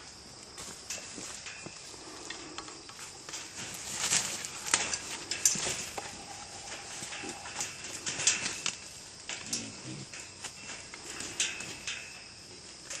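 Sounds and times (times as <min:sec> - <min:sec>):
animals rustling in leaf litter: 0:03.4 - 0:09.1.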